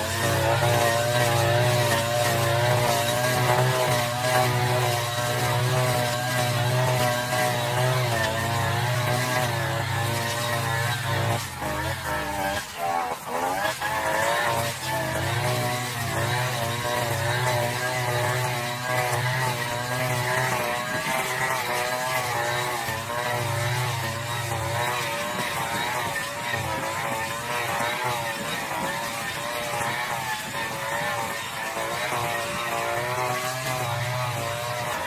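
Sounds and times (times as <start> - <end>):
brush cutter engine cutting grass: 0.0 - 35.0.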